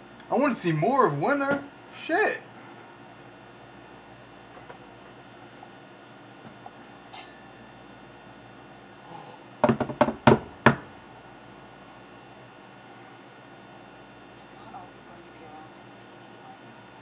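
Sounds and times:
hands slapping a desk: 0:09.6 - 0:10.8.

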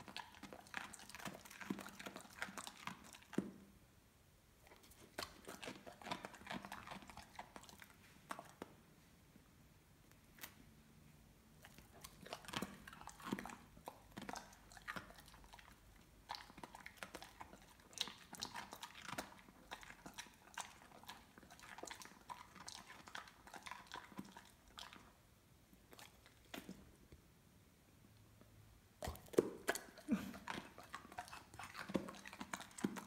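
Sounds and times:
dog crunching carrot: 0:00.0 - 0:03.7, 0:04.6 - 0:08.7, 0:11.6 - 0:25.2, 0:25.9 - 0:27.0, 0:29.0 - 0:33.0.

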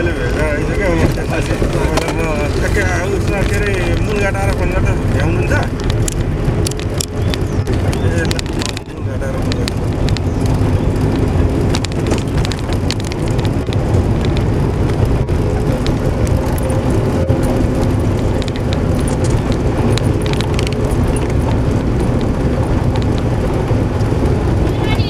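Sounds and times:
engine and road rumble: 0:00.0 - 0:25.0
small rattling clicks: 0:05.7 - 0:24.4.

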